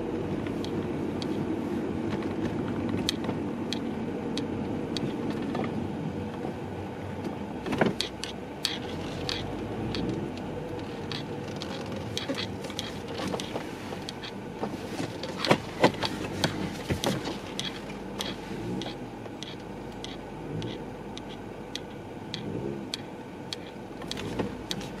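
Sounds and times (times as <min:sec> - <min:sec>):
road and engine rumble: 0:00.0 - 0:25.0
strap clicking and ticking: 0:02.2 - 0:05.3, 0:07.8 - 0:14.4, 0:15.0 - 0:25.0.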